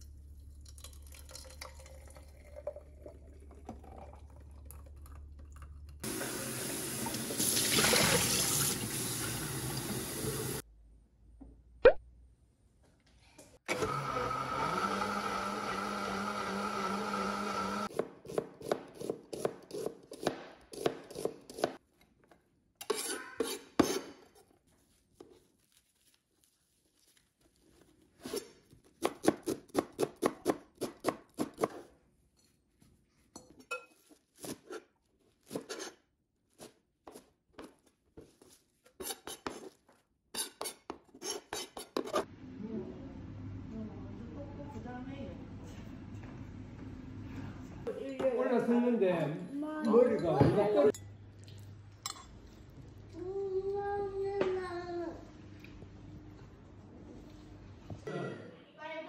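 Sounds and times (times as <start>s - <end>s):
blender running: 13.7s - 17.9s.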